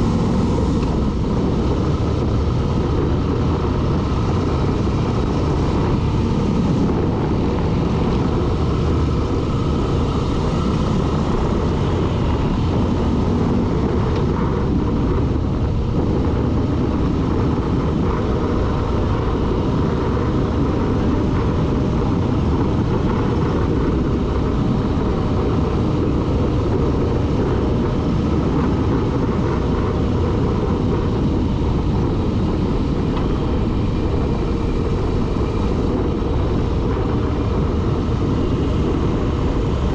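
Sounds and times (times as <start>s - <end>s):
vehicle noise rushing: 0.0s - 39.9s.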